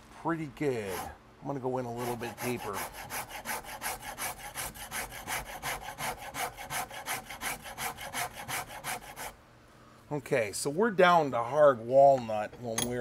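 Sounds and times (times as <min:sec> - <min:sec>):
file rasping across wood: 0:00.8 - 0:01.2, 0:01.9 - 0:09.4.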